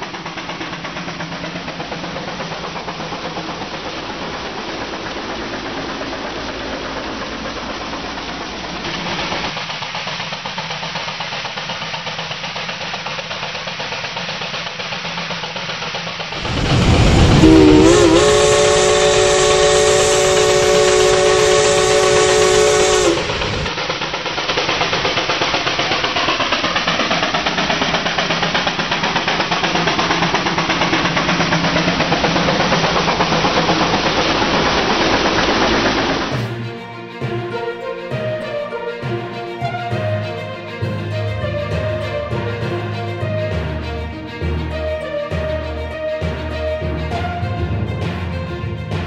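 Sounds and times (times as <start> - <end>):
steam engine running: 0.0 - 49.0
steam whistle blowing: 16.4 - 23.7.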